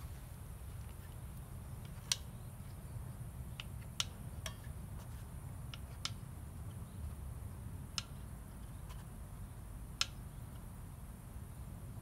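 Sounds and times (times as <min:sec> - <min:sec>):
low steady rumble: 0:00.0 - 0:12.0
sharp wooden stick clicks: 0:01.8 - 0:02.4, 0:03.5 - 0:04.7, 0:07.9 - 0:08.2, 0:10.0 - 0:10.7.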